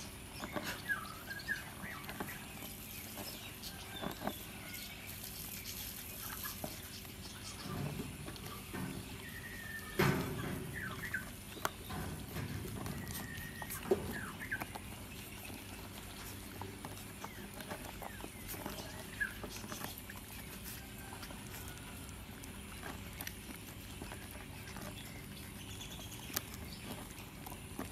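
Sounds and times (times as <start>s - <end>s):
puppies lapping milk: 0.0s - 27.9s.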